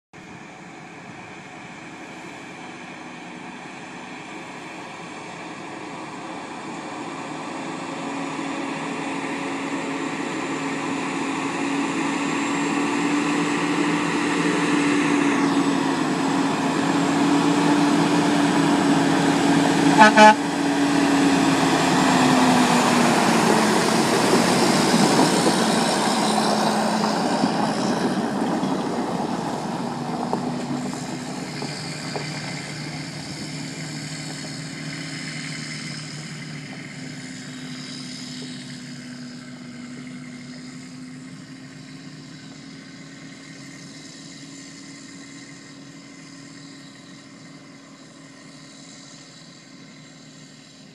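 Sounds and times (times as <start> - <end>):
diesel truck engine pulling away: 0.2 - 50.9.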